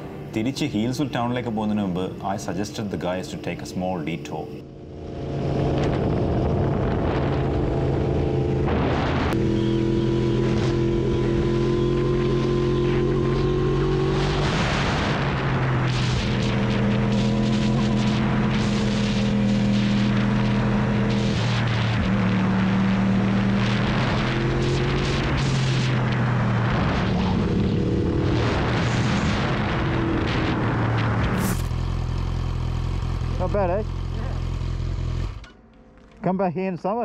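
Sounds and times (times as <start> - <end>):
motorcycle engine revving: 4.6 - 36.2
wind rushing over microphone: 5.2 - 9.4.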